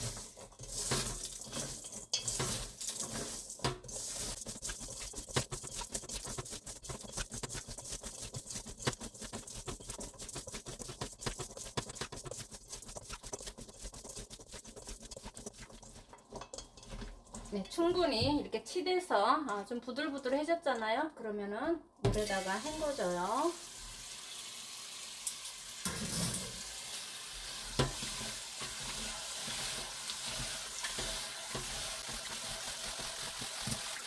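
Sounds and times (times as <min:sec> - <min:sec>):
gritty rubbing with salt: 0:00.0 - 0:18.1.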